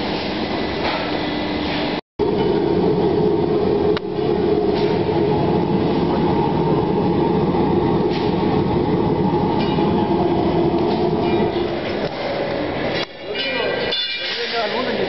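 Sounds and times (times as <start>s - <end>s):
baking machine mechanical drone: 0.0s - 15.0s.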